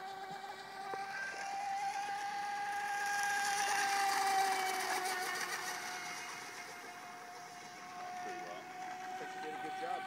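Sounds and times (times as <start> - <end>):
model boat motor whining: 0.0 - 10.0.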